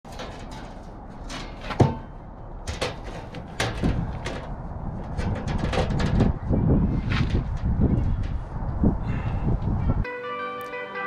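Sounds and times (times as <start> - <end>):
sheet metal knocking and clanking: 0.1 - 6.5.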